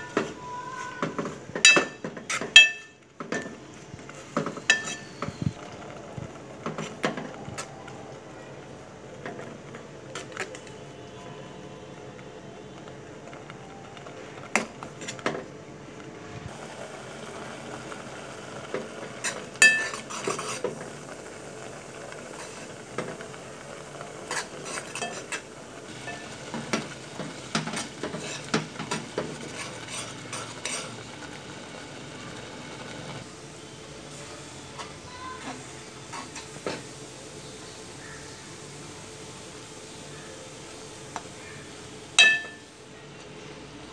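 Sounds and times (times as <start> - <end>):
metal spoon scraping steel pot: 4.7 - 5.2, 24.3 - 25.4.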